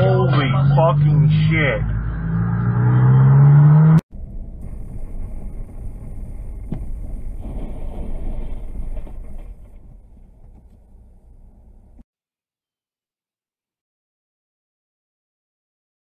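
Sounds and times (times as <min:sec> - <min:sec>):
loud low vehicle hum: 0:00.0 - 0:12.0
road noise inside car: 0:00.0 - 0:12.0.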